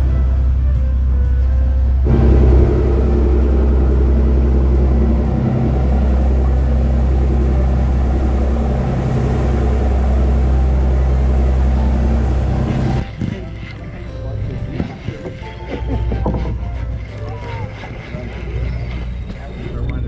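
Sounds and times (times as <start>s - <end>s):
boat engine droning: 0.0s - 20.0s
water rushing past hull: 2.0s - 20.0s.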